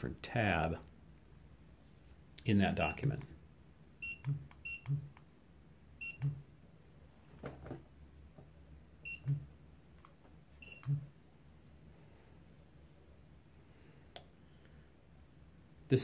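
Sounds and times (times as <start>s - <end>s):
barcode scanner beep: 4.0s - 5.1s, 6.0s - 6.4s, 9.0s - 9.4s, 10.6s - 11.1s.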